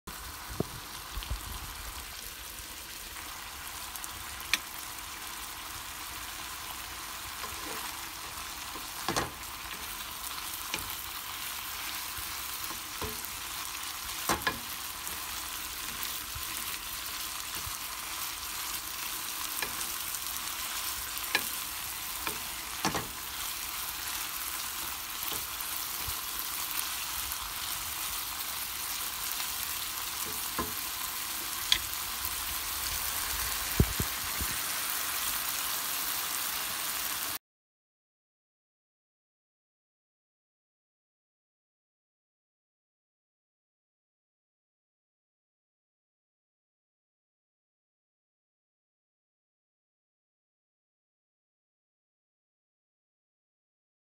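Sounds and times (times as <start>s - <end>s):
chicken sizzling in a frying pan: 0.1s - 37.4s.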